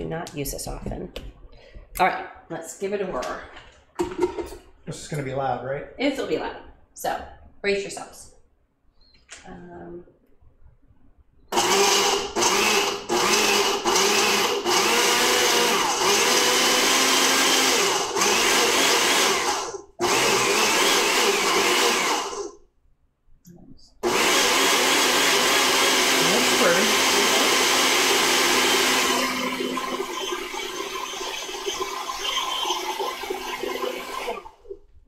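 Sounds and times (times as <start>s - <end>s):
blender pureeing: 11.5s - 22.6s, 24.0s - 34.9s.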